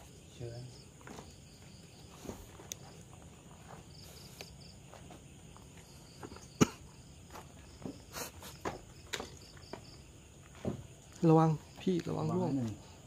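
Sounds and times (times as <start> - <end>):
insects chirping faintly: 0.0 - 13.0
footsteps on wooden stairs: 7.2 - 11.9.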